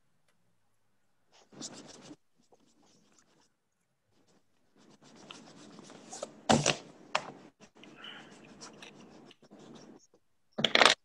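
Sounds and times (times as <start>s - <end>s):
pencil scratching on paper: 1.4s - 6.3s, 7.7s - 10.2s.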